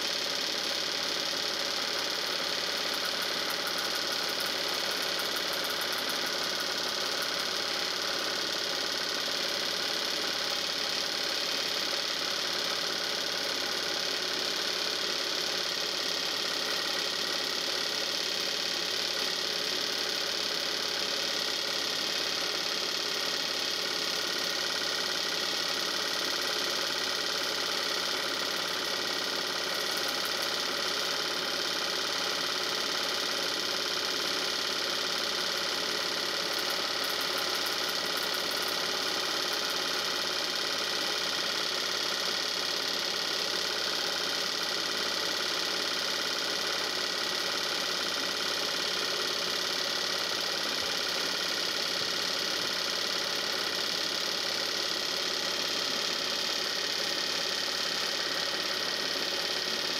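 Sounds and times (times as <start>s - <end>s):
film projector running: 0.0s - 59.9s.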